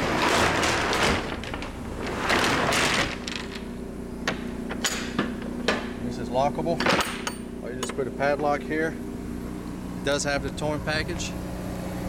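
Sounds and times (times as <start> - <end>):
scraping rumbling noise: 0.0 - 3.7
generator and heat pump hum: 0.0 - 12.0.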